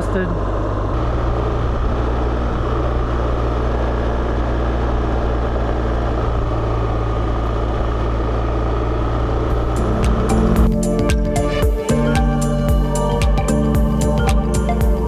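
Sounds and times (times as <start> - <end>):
rushing road noise: 0.0 - 11.9
motorcycle engine: 0.0 - 15.0.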